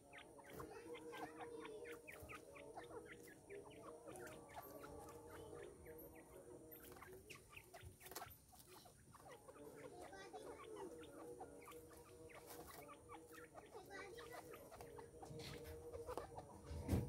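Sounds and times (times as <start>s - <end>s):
francolins chirping: 0.0s - 16.9s.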